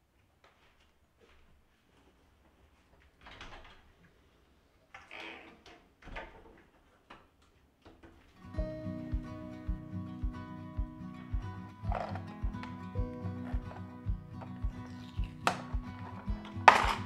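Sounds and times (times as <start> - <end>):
plastic hangers clacking on rod: 14.4 - 17.0.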